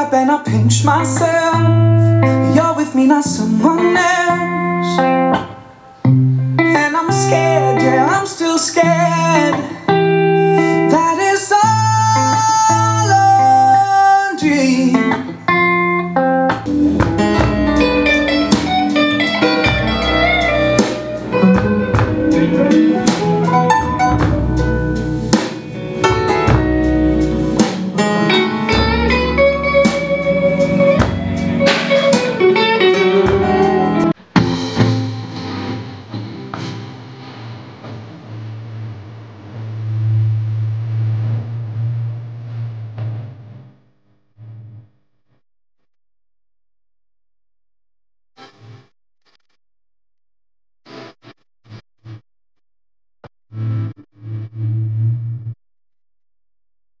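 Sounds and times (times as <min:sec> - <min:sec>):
song with guitar and singing: 0:00.0 - 0:38.1
deep bass line: 0:16.6 - 0:35.3, 0:53.2 - 0:55.6.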